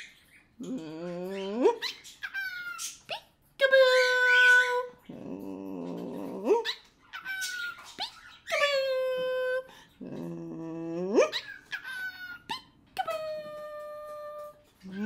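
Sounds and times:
woman humming coos: 0.6s - 1.8s, 9.1s - 11.3s.

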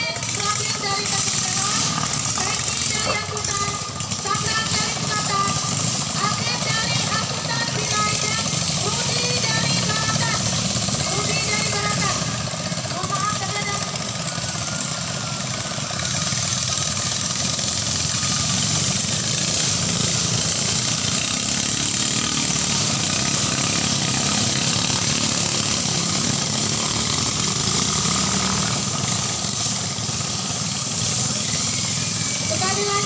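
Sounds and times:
boat engines running hard: 0.0s - 33.0s.

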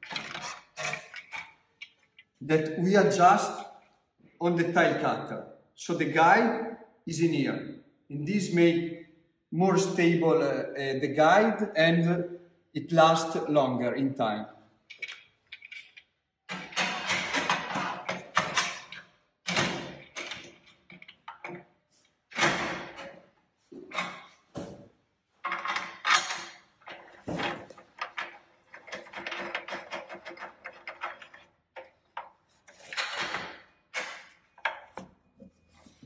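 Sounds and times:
metal clicking and rattling: 14.9s - 21.6s, 25.4s - 35.0s.

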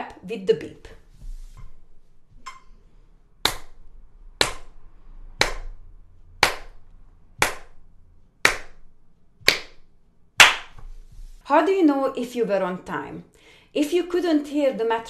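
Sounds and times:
hand claps: 3.4s - 3.8s, 4.4s - 4.8s, 5.4s - 5.8s, 6.4s - 6.8s, 7.4s - 7.8s, 8.4s - 8.8s, 9.4s - 9.8s, 10.4s - 10.9s.

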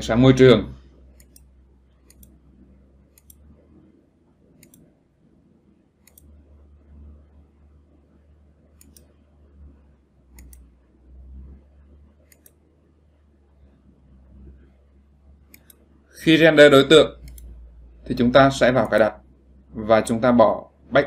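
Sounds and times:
low steady hum: 0.0s - 21.0s
computer mouse clicks: 1.1s - 3.9s, 4.5s - 4.9s, 6.0s - 7.1s, 8.7s - 9.7s, 10.3s - 10.7s, 11.4s - 12.6s, 15.4s - 15.9s, 17.2s - 17.6s.

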